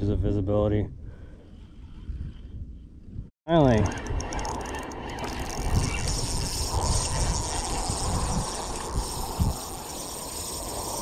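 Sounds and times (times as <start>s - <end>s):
rushing wind: 0.0s - 11.0s
spinning reel reeling: 3.6s - 11.0s.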